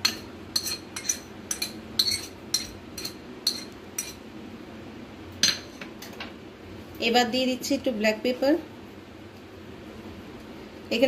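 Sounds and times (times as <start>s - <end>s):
knife clinking and scraping on plate: 0.0s - 4.2s.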